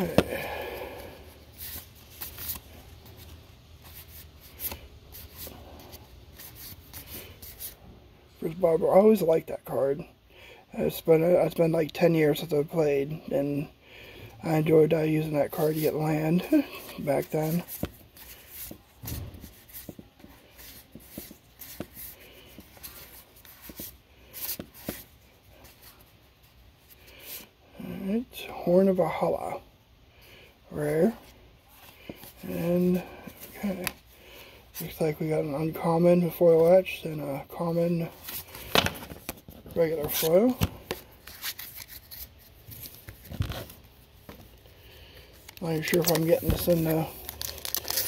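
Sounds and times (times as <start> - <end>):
cards flicking and rustling: 0.0 - 7.8, 16.8 - 25.1, 38.2 - 44.6, 45.3 - 48.0.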